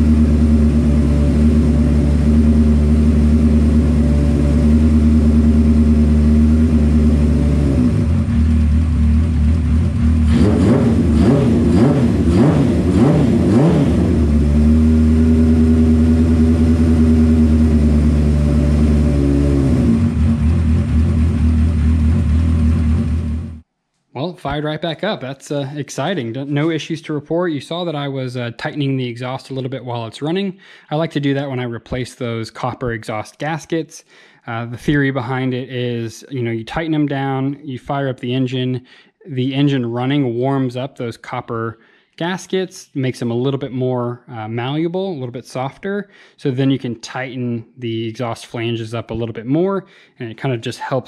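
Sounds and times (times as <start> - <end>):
motorcycle engine idling and revving: 0.0 - 23.6.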